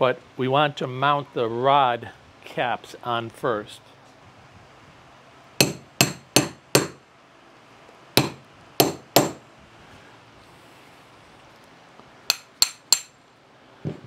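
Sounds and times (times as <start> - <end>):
hammer striking metal: 5.6 - 7.0, 8.2 - 9.4, 12.3 - 13.2.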